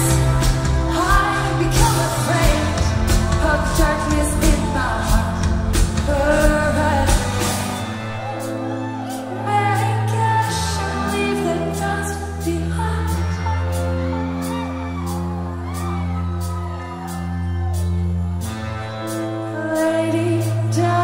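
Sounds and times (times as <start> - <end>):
woman singing: 0.0 - 7.9, 9.2 - 16.0, 19.5 - 21.0
live pop-rock band: 0.0 - 21.0.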